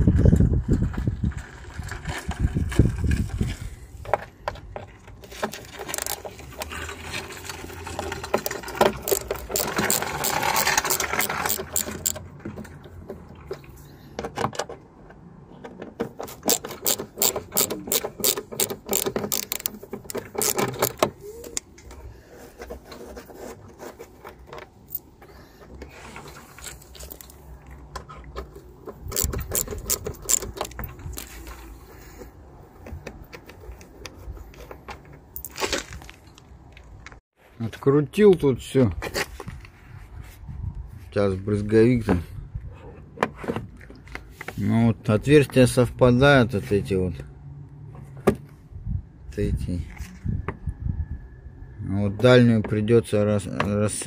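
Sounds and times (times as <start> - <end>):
ratcheting screwdriver clicking: 9.0 - 12.2, 16.3 - 21.1, 28.9 - 31.3.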